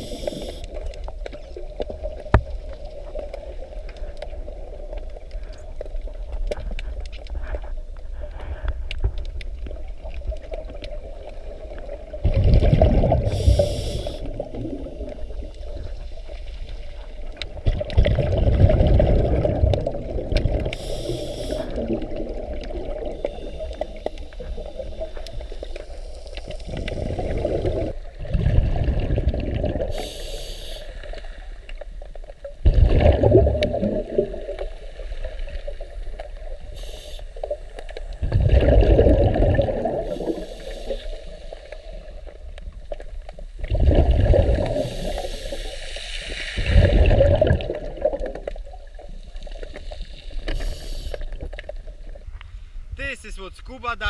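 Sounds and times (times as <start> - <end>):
high hiss of inhale: 0.0 - 0.7, 13.2 - 14.4, 20.7 - 21.9, 23.2 - 27.4, 29.9 - 31.6, 36.7 - 37.6, 40.0 - 42.2, 44.8 - 46.7, 49.7 - 51.4
bubbly exhaled air rushes: 12.2 - 15.9, 17.5 - 25.2, 26.5 - 30.3, 32.6 - 34.6, 38.2 - 41.0, 43.6 - 48.7.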